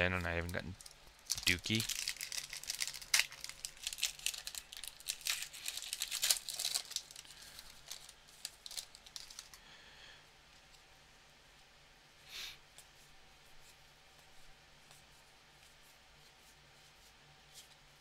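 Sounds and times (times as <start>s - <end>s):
wrapper being torn and crinkled: 0.2s - 9.6s.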